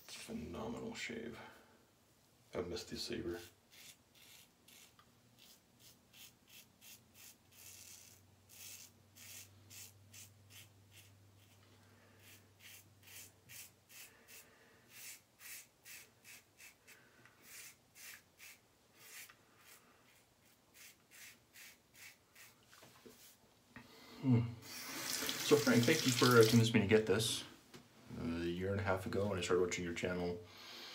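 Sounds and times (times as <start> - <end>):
razor scraping stubble: 3.3 - 11.6, 12.2 - 22.6.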